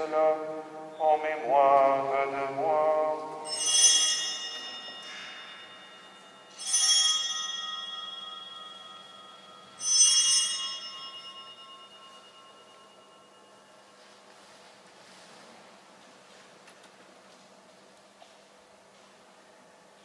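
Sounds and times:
altar bell ringing: 0:03.0 - 0:14.0.

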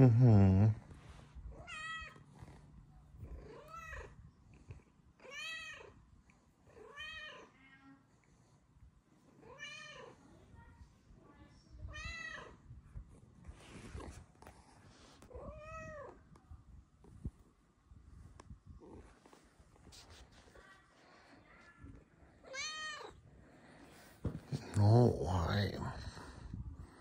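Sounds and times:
cat meowing: 0:22.4 - 0:23.2.

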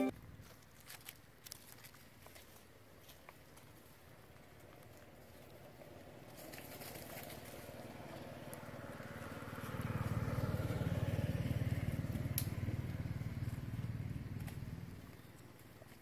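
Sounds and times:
passing vehicle engine drone: 0:05.5 - 0:15.2.

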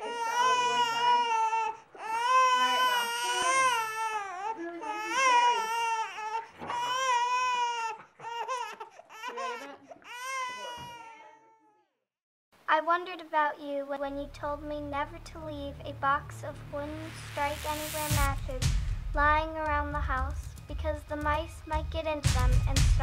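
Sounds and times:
baby crying: 0:00.0 - 0:11.9.

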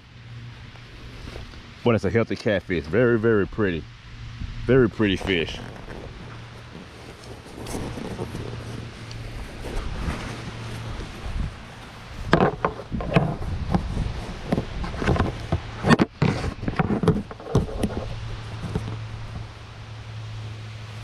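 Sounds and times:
low steady hum: 0:00.0 - 0:21.0
irregular knocks and scrapes: 0:05.1 - 0:19.5.

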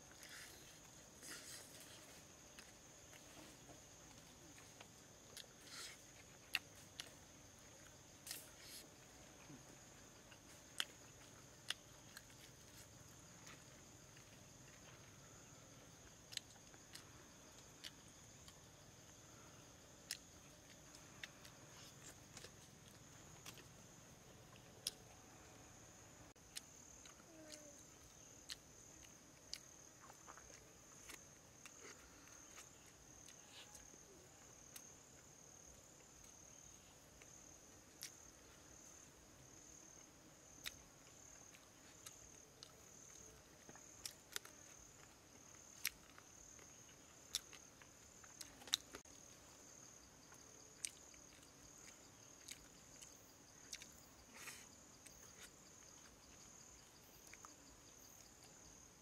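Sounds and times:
insects buzzing: 0:00.0 - 0:59.0
person eating with hands: 0:26.5 - 0:34.9, 0:40.5 - 0:49.3.

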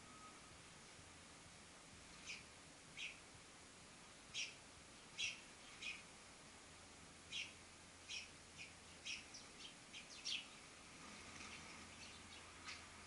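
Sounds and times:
sparrows chirping: 0:02.0 - 0:03.3, 0:04.2 - 0:13.0.

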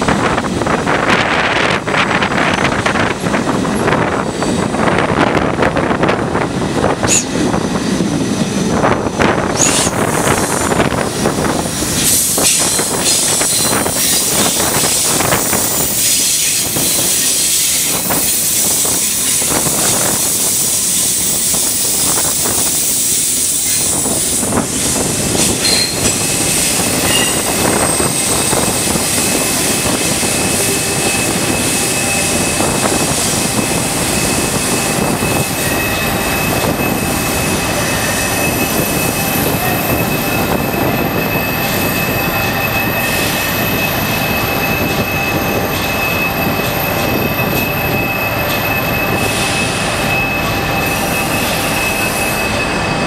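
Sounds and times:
train wheels rumbling on rails: 0:00.0 - 0:53.0
high-pitched wheel flange squeal: 0:09.4 - 0:24.6, 0:25.4 - 0:53.0.

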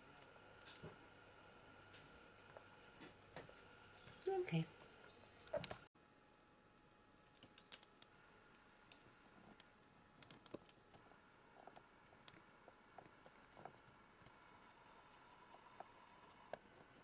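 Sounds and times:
squirrel gnawing seeds clicks: 0:07.3 - 0:08.1, 0:08.8 - 0:11.0.

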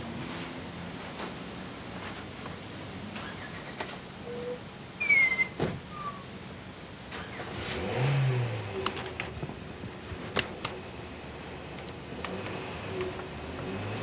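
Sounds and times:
squeak falling in pitch: 0:03.2 - 0:06.3.

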